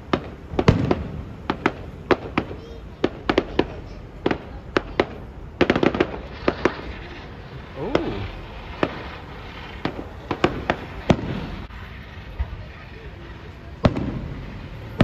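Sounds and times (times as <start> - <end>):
fireworks bursting: 0.0 - 15.0
rapid firework cracks: 0.0 - 15.0.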